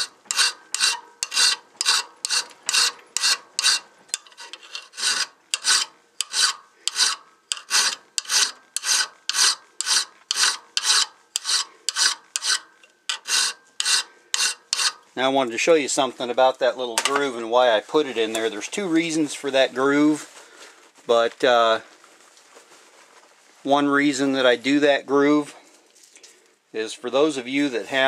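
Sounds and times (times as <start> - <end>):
file rasping on metal: 0.0 - 15.0.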